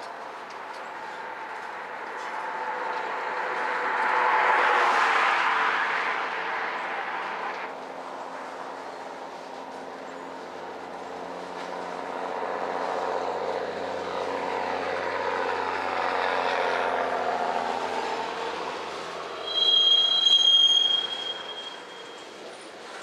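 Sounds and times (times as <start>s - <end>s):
train wheels rumbling on rail: 7.2s - 23.0s
metal-on-metal squeal: 19.3s - 22.7s.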